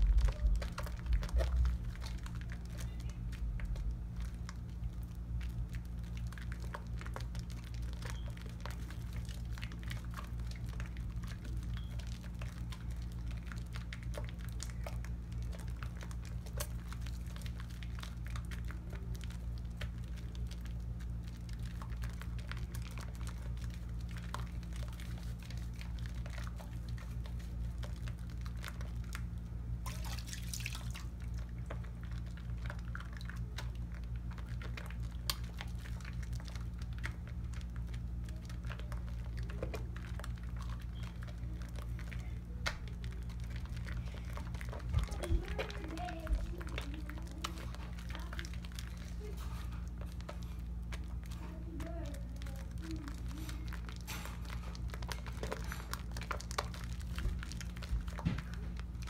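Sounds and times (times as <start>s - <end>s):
soapy hands squishing: 0.0s - 59.0s
steady low hum: 0.0s - 59.0s.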